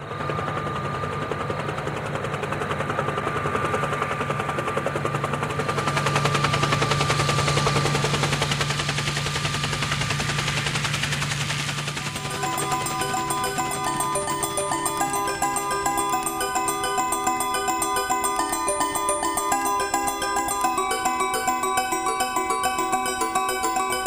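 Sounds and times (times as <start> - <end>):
helicopter rotor blades chopping: 0.6 - 24.0
thin steady whine: 11.9 - 24.0.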